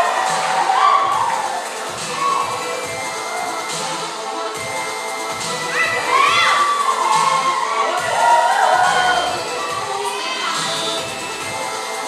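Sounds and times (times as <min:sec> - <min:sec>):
audience cheering and shouting: 0:00.0 - 0:03.9, 0:05.6 - 0:11.0
performance music: 0:00.0 - 0:12.0.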